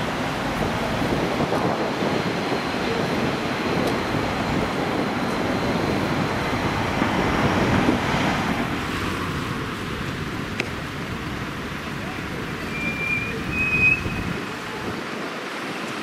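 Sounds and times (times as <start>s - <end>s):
cars driving past: 3.8s - 14.9s.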